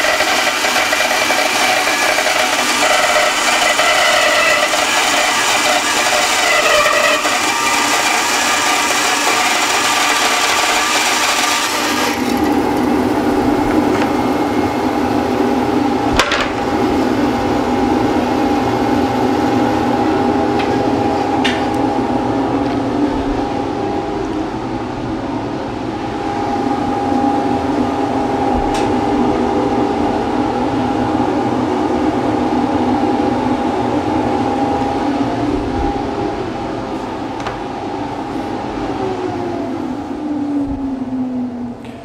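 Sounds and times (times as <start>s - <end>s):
bandsaw cutting wood: 0.0s - 12.9s
bandsaw humming free: 0.0s - 13.4s.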